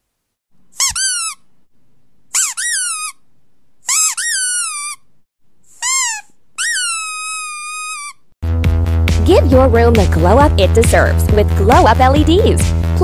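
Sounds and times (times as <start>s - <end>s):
high-pitched squeaks: 0.8s - 1.5s, 2.3s - 3.2s, 3.8s - 5.1s, 5.7s - 8.3s.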